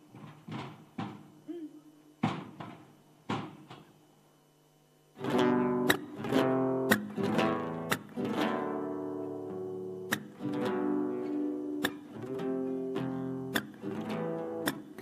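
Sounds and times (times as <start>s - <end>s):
sharp knock: 2.2s - 3.9s
acoustic guitar strumming: 5.1s - 15.0s.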